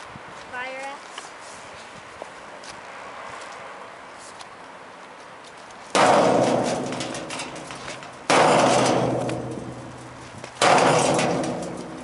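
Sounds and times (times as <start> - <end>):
sledgehammer clanging on metal: 6.0 - 12.0.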